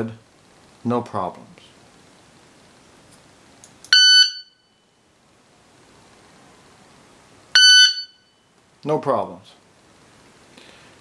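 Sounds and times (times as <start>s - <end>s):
shot timer start beep: 3.9s - 4.8s, 7.6s - 8.4s.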